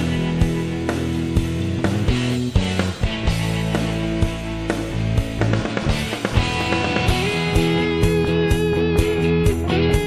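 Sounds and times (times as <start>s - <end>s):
rock music: 0.0s - 10.0s
drum hits: 4.8s - 7.7s.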